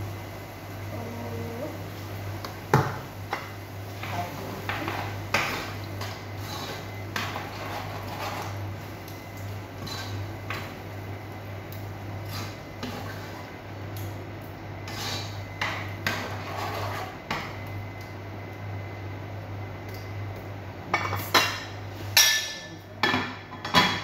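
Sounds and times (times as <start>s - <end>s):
steady low hum: 0.0s - 24.0s
metal utensil scraping a pot: 6.0s - 8.6s, 9.8s - 10.2s, 14.8s - 15.4s, 16.0s - 17.2s.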